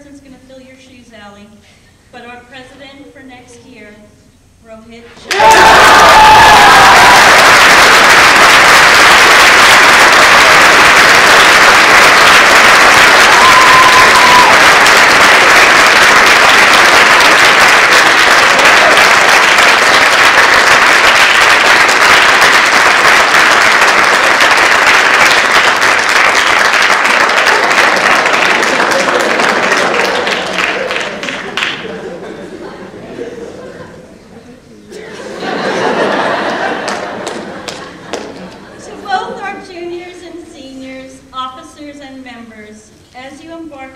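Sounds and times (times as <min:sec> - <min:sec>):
audience applauding: 0:05.3 - 0:32.2, 0:35.8 - 0:38.7.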